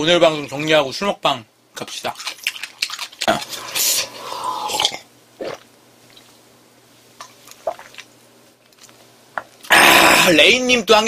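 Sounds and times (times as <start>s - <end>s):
person gulping a drink: 2.2s - 6.3s, 7.2s - 8.1s, 9.6s - 10.3s.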